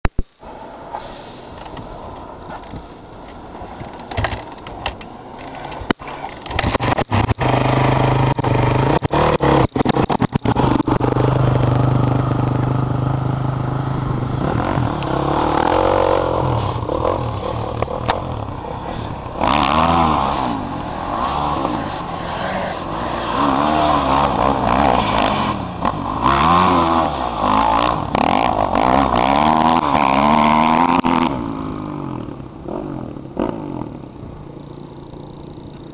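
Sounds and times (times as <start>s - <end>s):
sharp engine crackles: 3.7s - 35.9s
car engine revving hard: 18.6s - 32.0s.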